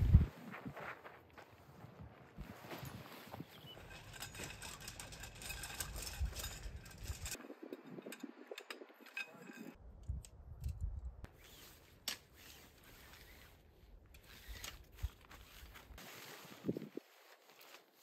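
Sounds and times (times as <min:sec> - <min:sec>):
light clicks and scrapes: 0:03.7 - 0:10.8
tent poles clicking together: 0:03.8 - 0:10.8, 0:11.4 - 0:16.9
nylon fabric rustling: 0:14.2 - 0:18.0.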